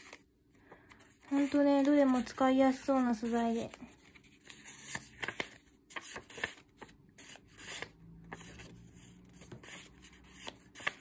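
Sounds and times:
paper rustling: 0:00.0 - 0:08.8, 0:09.4 - 0:11.0.

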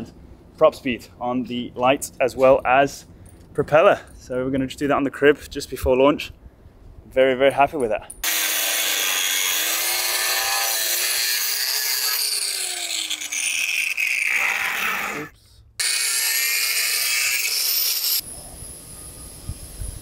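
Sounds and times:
angle grinder cutting wood: 0:08.2 - 0:18.2.

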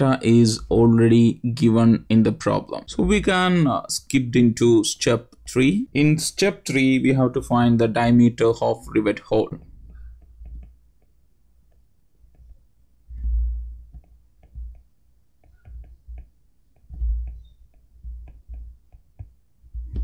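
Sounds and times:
dull low bumps on desk: 0:09.6 - 0:20.0
stylus tapping on tablet screen: 0:09.6 - 0:20.0.

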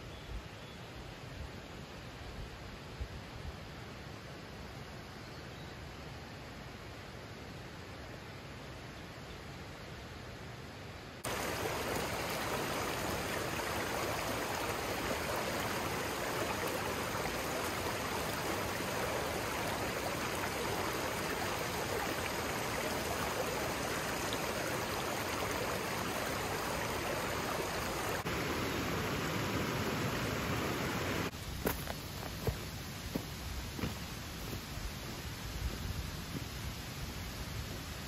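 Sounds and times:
stream water babbling: 0:11.2 - 0:33.2.

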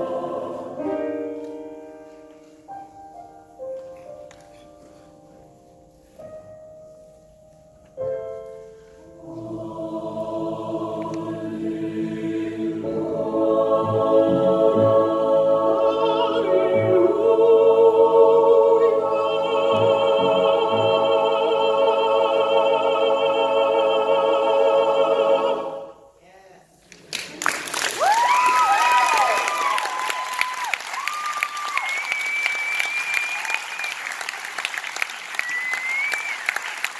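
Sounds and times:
mixed choir singing: 0:00.0 - 0:01.3, 0:09.2 - 0:26.2
soft piano notes: 0:00.6 - 0:09.6.

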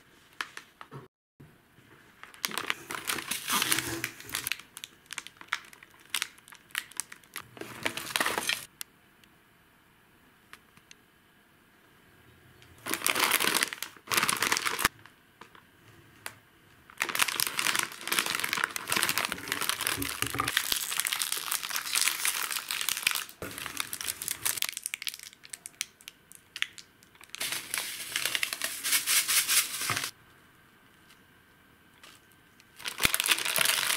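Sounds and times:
plastic packaging crinkling: 0:02.2 - 0:08.7, 0:12.8 - 0:15.6, 0:16.9 - 0:30.1, 0:32.0 - 0:33.9.

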